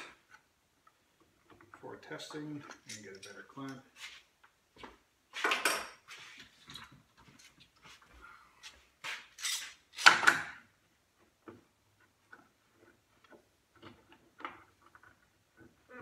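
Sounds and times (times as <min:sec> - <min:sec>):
metal clamp clattering on wood: 0:02.6 - 0:03.8.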